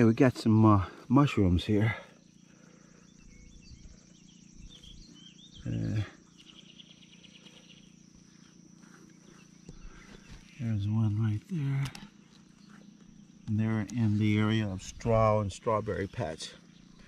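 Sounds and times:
man humming: 5.6 - 6.2.

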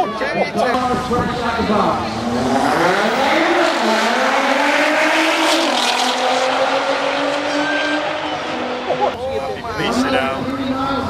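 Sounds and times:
cars accelerating hard: 0.8 - 9.3.

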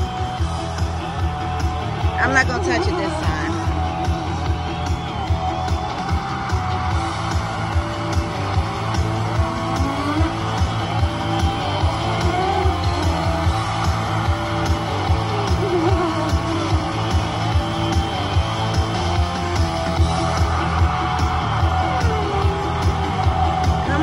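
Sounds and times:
rock music with guitar and beat: 0.0 - 24.0.

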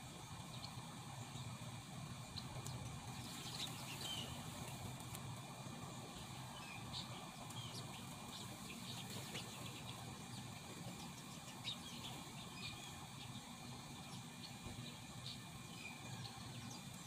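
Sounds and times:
insect drone: 0.0 - 17.0
birds chirping: 0.2 - 17.0.

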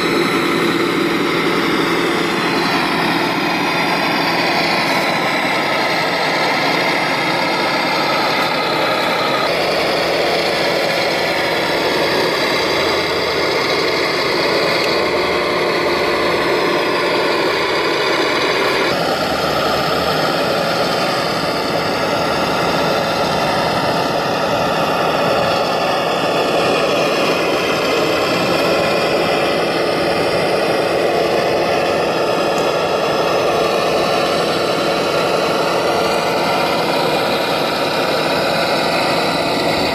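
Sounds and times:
toy tractor electric motor whine: 0.0 - 39.9.

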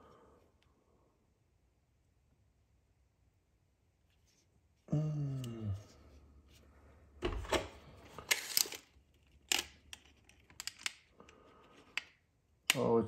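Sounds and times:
person humming: 4.9 - 6.0.

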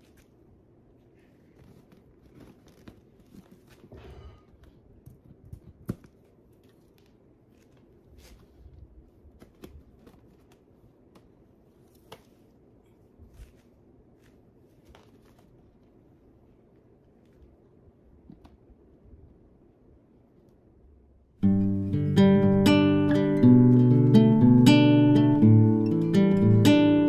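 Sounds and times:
plastic balloon rustling: 0.0 - 18.5.

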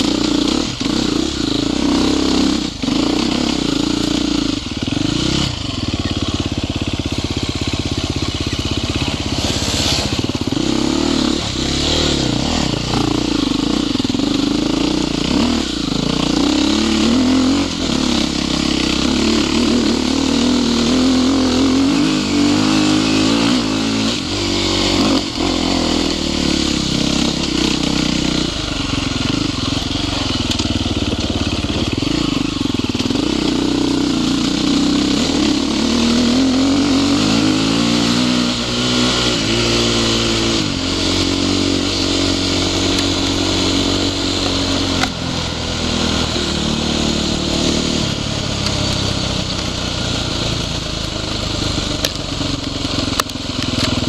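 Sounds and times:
dirt bike engine revving: 0.0 - 54.0
steady rushing noise: 6.4 - 22.4.

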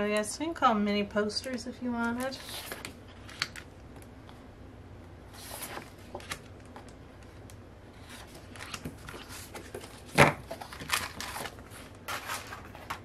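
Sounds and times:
paper and plastic packaging rustling: 5.4 - 13.0.

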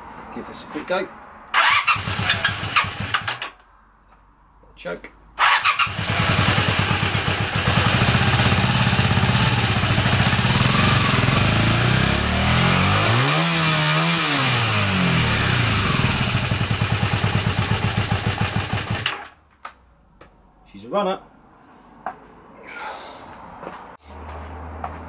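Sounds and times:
engine revving: 1.5 - 3.4, 5.4 - 19.2
motorcycle engine idling roughly: 5.8 - 12.2, 15.3 - 19.2.

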